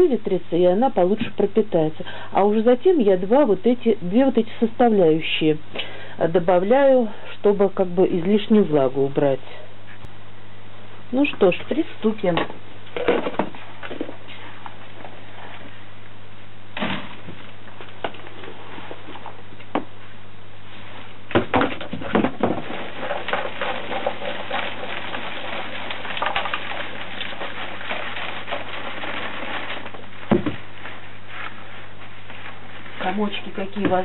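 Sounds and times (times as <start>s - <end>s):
plastic crate knocks: 21.3s - 22.7s, 30.2s - 30.6s
soil rustling through mesh: 22.6s - 34.0s.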